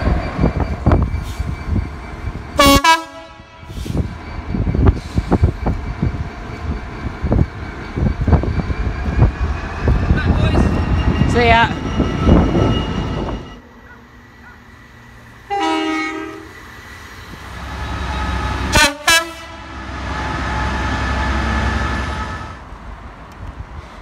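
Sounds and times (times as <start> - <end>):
locomotive rumble: 0.0 - 24.0
loud train rumble: 0.0 - 24.0
locomotive horn: 2.6 - 3.8, 15.5 - 16.6, 18.2 - 19.8.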